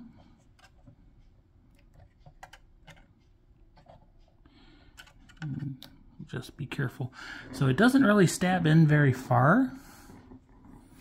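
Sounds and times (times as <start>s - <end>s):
small clicks and taps: 1.7s - 4.3s.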